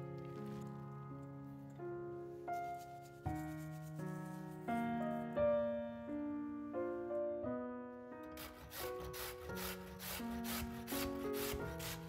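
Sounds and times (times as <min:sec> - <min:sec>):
soft piano music: 0:00.0 - 0:12.0
potato grated on grater: 0:08.3 - 0:12.0.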